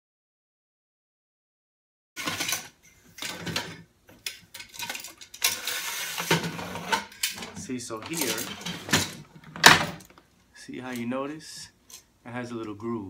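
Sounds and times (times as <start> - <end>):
fabric rustling and scraping on metal: 4.7 - 10.1.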